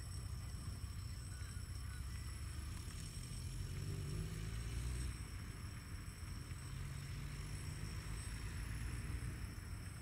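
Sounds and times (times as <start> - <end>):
diesel locomotive engine rumble: 0.0 - 10.0.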